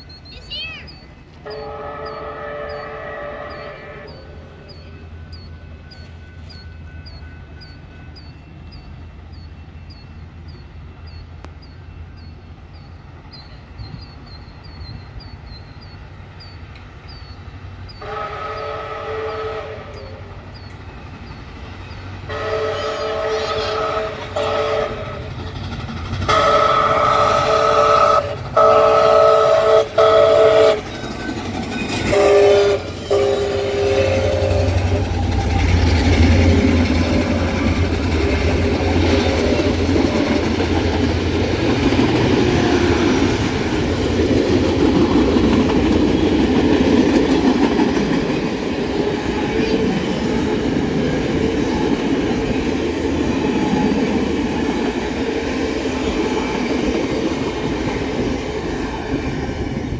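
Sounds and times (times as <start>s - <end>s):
steam locomotive rumbling: 0.0s - 59.9s
train wheels on rails: 0.0s - 59.9s
steam whistle blasts: 1.4s - 4.5s, 18.0s - 20.4s, 22.2s - 25.3s, 26.3s - 30.9s, 32.1s - 35.4s.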